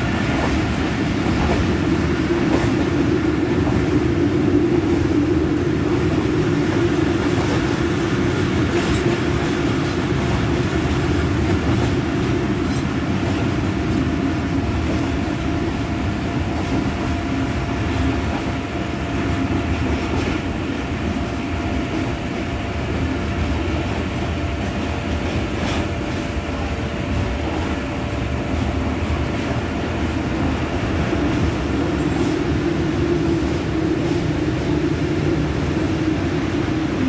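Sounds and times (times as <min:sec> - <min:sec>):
train wheels rumbling on track: 0:00.0 - 0:37.0.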